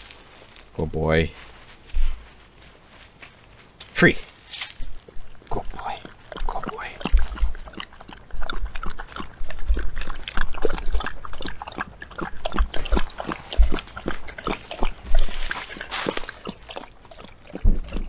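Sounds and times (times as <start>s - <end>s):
rustling hiss: 0.0s - 5.1s
dog chewing from food bowl: 4.9s - 18.0s.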